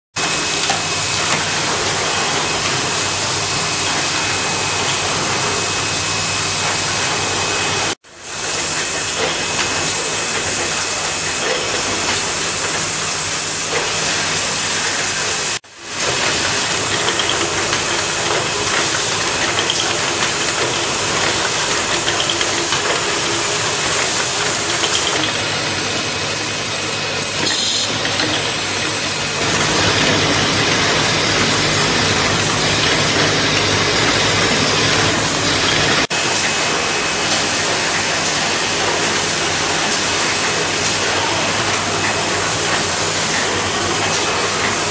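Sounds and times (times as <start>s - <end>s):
machinery hiss: 7.6s - 36.1s
low machine hum: 23.3s - 36.1s.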